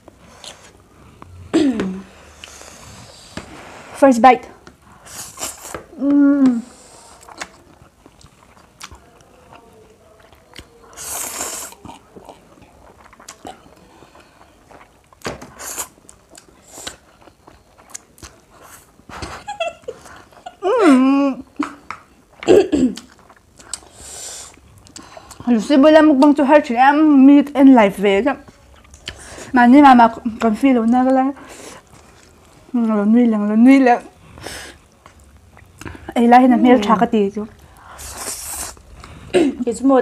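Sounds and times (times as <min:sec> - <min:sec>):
wet chewing: 0:06.8 - 0:20.6, 0:21.7 - 0:26.4, 0:28.4 - 0:29.5, 0:34.1 - 0:36.8
noodles being slurped: 0:37.8 - 0:38.9.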